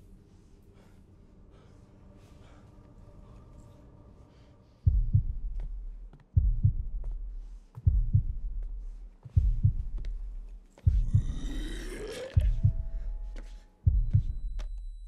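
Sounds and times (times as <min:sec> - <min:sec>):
deep heartbeat thumps: 0:04.9 - 0:15.0.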